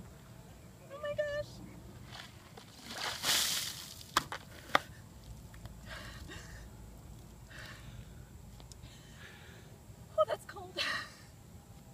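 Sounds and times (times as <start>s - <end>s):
water splashing onto grass: 2.6s - 4.2s.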